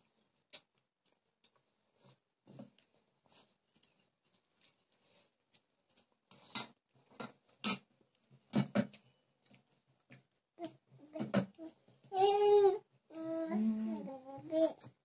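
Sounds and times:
chewing and mouth clicks: 0.0s - 6.5s, 8.9s - 10.9s.

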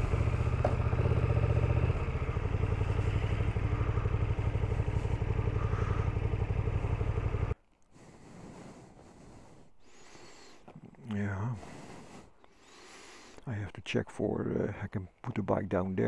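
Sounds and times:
motorcycle engine pulsing: 0.0s - 7.6s
faint outdoor background: 0.0s - 16.0s.

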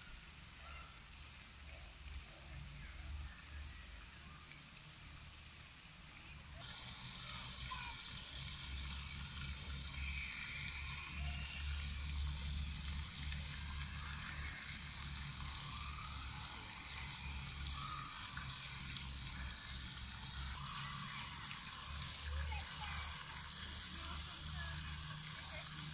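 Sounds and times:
fountain water splashing: 0.0s - 25.9s
faint chirps: 6.6s - 25.9s.

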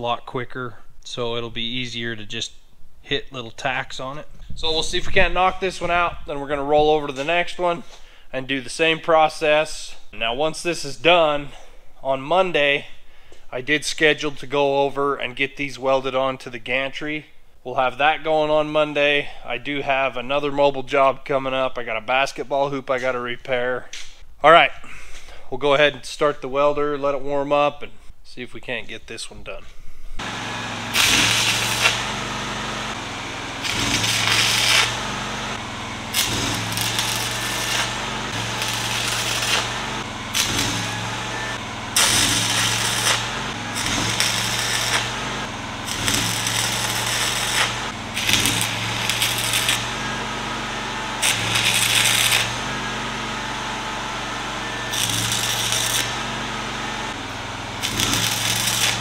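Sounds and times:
welder engine running: 30.2s - 59.0s
welding arc crackling: 30.2s - 59.0s.

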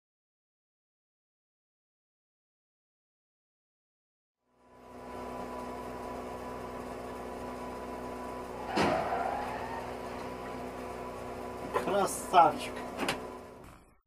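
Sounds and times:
steady electrical hum: 4.5s - 13.6s.

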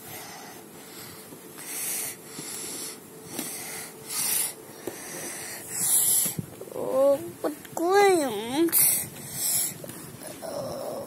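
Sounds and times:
person breathing in puffs: 0.0s - 6.4s.

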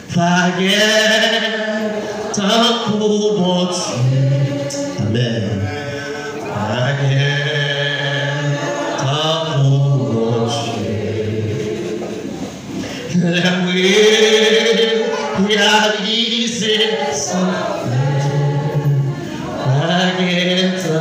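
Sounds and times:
man singing a hymn: 0.0s - 21.0s
other voices singing: 0.0s - 21.0s.

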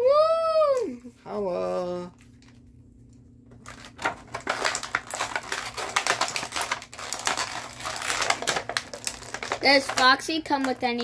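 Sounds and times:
plastic bag crinkling: 3.5s - 11.0s.

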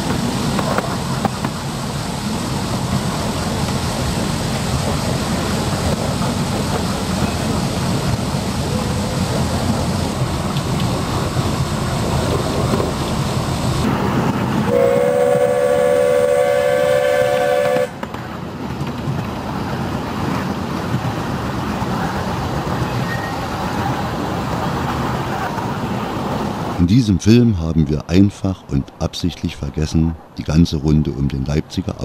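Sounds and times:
train coaches rumbling and clattering: 0.0s - 32.0s
steam whistle blowing: 14.6s - 18.0s.

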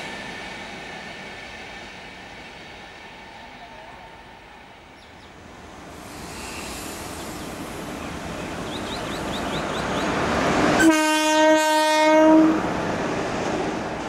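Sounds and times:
train rumbling on track: 0.0s - 14.0s
locomotive horn blast: 10.8s - 12.6s.

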